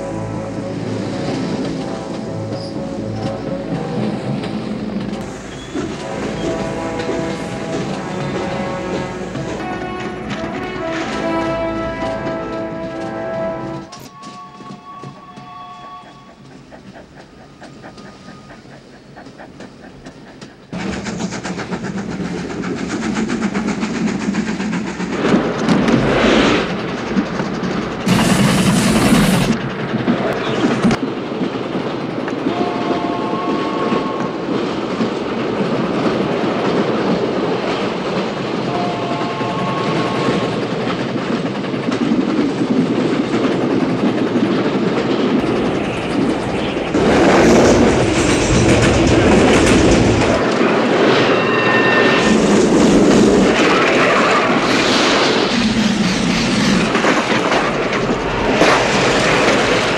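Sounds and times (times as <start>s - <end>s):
train wheels clattering on rails: 0.0s - 59.9s
train whistle: 5.2s - 16.5s, 32.4s - 34.5s, 38.6s - 40.6s, 51.2s - 52.5s.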